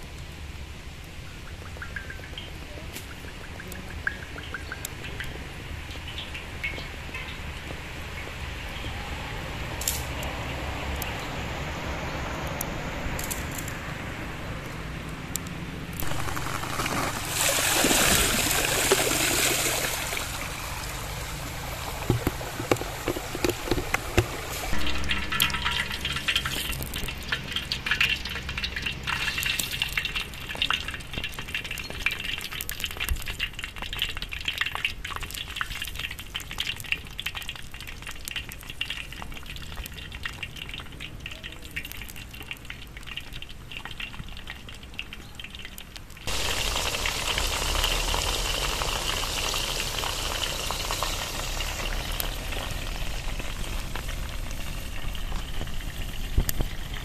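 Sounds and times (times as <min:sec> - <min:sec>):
vegetables sizzling in hot oil: 0:16.0 - 0:57.0.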